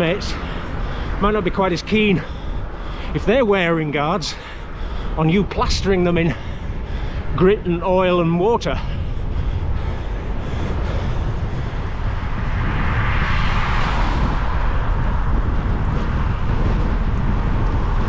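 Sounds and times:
wind buffeting microphone: 0:00.0 - 0:18.0
car passing on wet road: 0:12.4 - 0:15.3.

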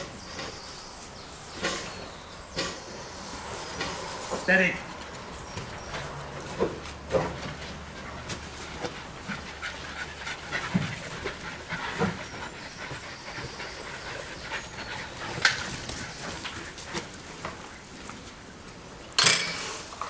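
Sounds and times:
dogs panting: 0:00.0 - 0:18.3.

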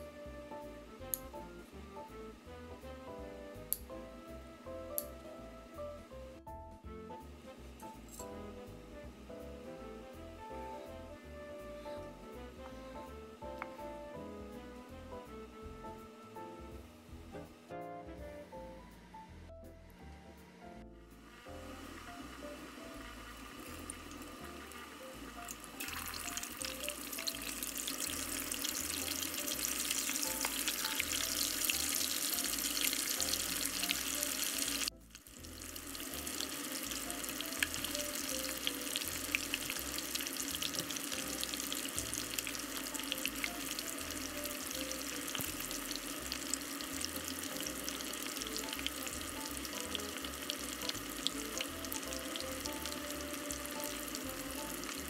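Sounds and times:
food deep-frying in oil: 0:21.2 - 0:55.0.

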